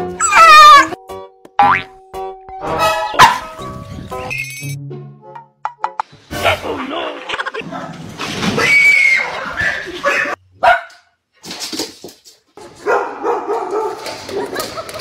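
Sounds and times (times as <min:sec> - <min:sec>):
dog whimpering: 0:00.2 - 0:01.0
dog barking: 0:03.1 - 0:03.5, 0:10.0 - 0:11.1, 0:12.8 - 0:14.7.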